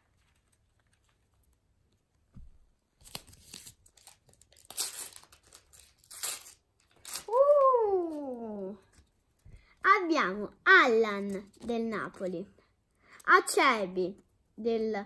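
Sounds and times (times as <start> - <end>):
sticker packet tearing and crinkling: 0.0 - 1.7, 2.9 - 7.6.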